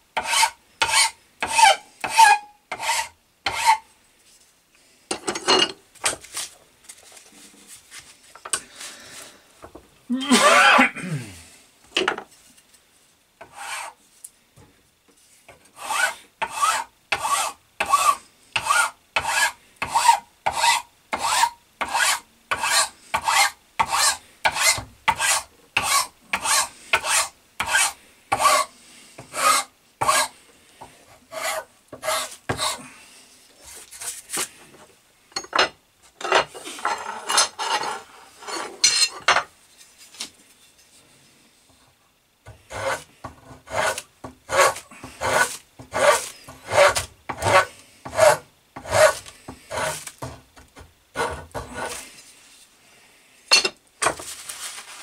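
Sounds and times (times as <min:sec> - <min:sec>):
file rasping on wood: 0:00.2 - 0:03.8, 0:13.4 - 0:14.0, 0:15.8 - 0:30.3, 0:31.3 - 0:32.8, 0:42.5 - 0:50.4, 0:51.2 - 0:52.0.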